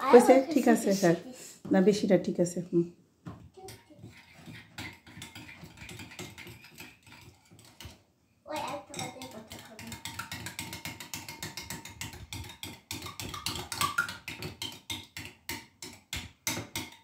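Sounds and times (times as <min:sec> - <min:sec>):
whisk clicking against glass bowl: 0:03.6 - 0:07.9, 0:08.5 - 0:17.0.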